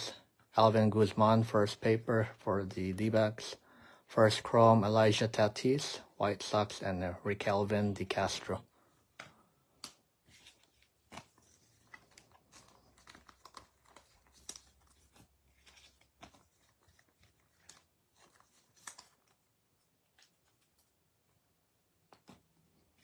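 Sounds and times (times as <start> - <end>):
foil wrapper crinkling: 10.9 - 19.5.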